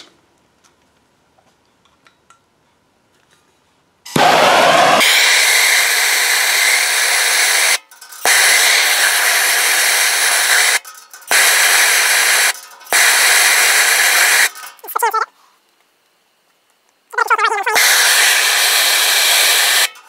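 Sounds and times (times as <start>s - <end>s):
gas torch flame hissing: 4.1s - 14.6s, 17.8s - 20.0s.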